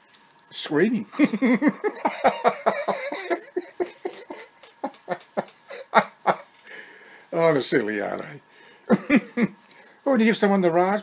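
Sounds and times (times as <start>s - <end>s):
man laughing: 1.1s - 6.5s, 8.9s - 9.5s.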